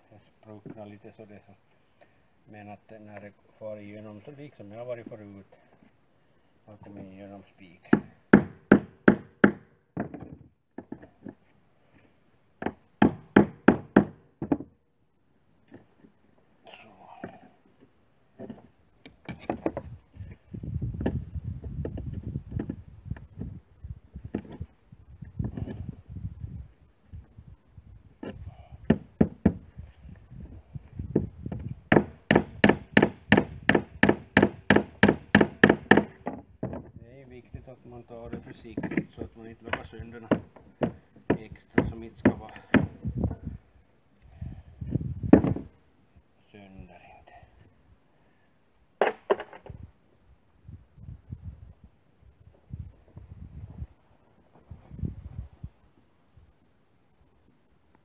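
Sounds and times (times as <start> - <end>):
hammer striking nails into wood: 7.9 - 11.1, 12.6 - 14.7, 28.2 - 29.6, 31.1 - 36.8, 39.7 - 43.0.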